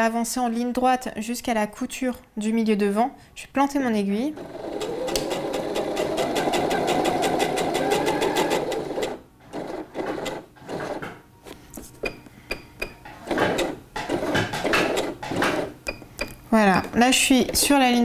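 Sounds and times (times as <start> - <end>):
sewing machine stitching: 4.4 - 11.2, 13.1 - 15.8.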